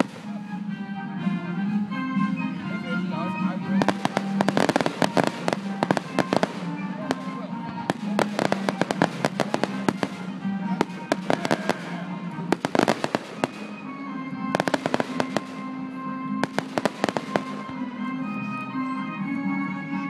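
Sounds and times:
fireworks popping and banging: 0.0 - 0.4, 3.8 - 15.7, 16.4 - 17.8
music playing: 0.0 - 20.0.

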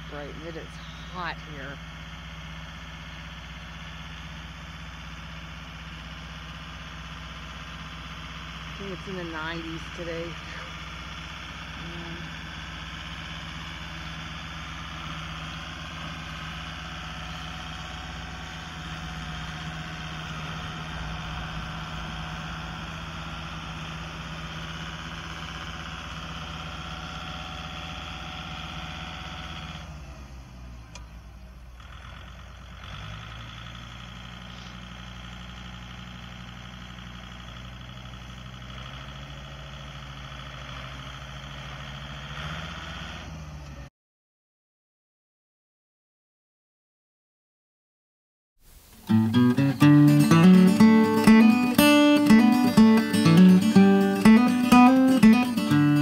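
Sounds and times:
tractor diesel engine running: 0.0 - 43.9, 48.7 - 56.0.

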